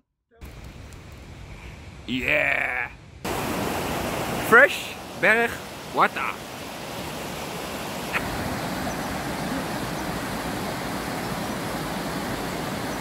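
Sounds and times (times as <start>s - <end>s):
stream rushing over rocks: 3.2s - 13.0s.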